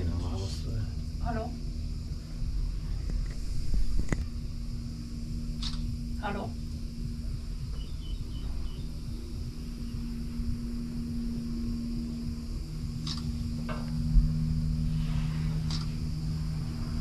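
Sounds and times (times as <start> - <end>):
cable car mechanical hum: 0.0 - 17.0
faint clicks: 5.6 - 5.9, 13.0 - 14.0, 15.7 - 15.9.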